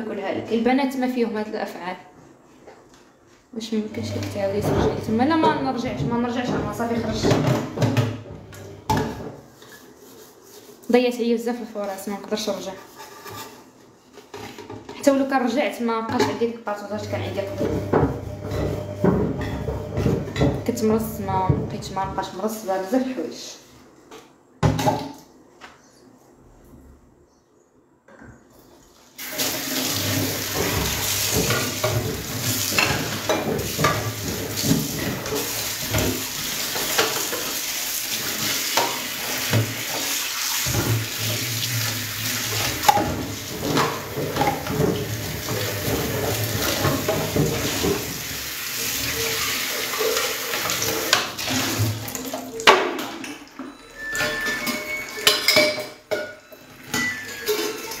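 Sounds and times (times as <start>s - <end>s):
dishes knocking in rack: 4.2s - 9.4s, 17.4s - 22.3s, 29.9s - 37.4s, 42.5s - 48.2s
crockery and cutlery clinking: 52.6s - 58.0s.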